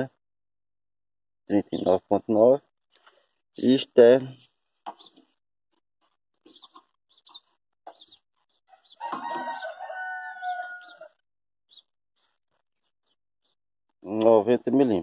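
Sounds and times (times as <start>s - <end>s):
rooster crowing: 8.7s - 11.2s.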